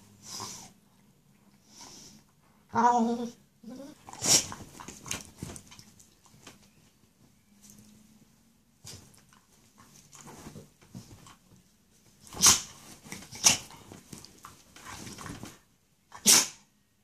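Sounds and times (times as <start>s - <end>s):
rustling bedding: 3.9s - 15.8s.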